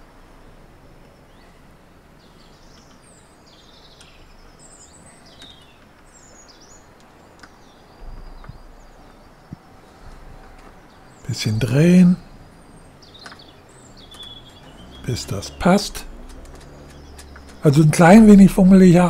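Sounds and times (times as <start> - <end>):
small birds chirping: 0.0 - 19.0
faint outdoor hush: 3.5 - 19.0
light clicks of cover handled: 16.1 - 17.6.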